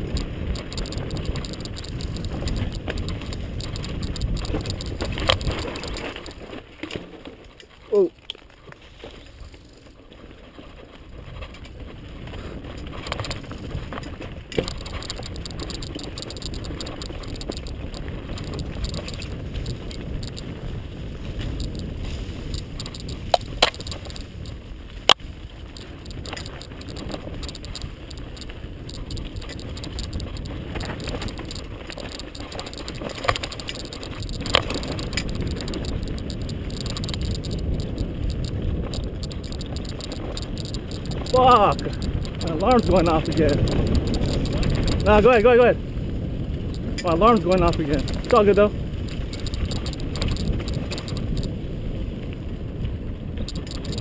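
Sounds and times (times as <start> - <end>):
bike tyres rumbling over dirt: 0.0 - 54.0
sharp clacks: 12.7 - 20.5, 21.4 - 45.7, 46.7 - 51.5, 53.4 - 54.0.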